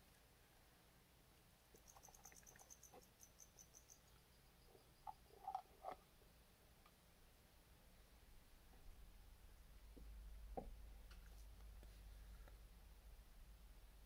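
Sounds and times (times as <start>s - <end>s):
rapid high chirps: 1.8s - 4.1s.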